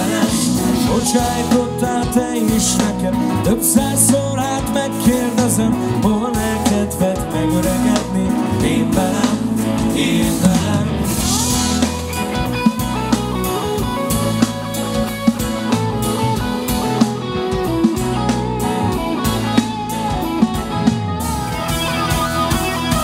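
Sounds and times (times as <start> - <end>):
bass guitar: 0.0 - 23.0
drum kit beat: 0.0 - 23.0
electric guitar: 0.0 - 23.0.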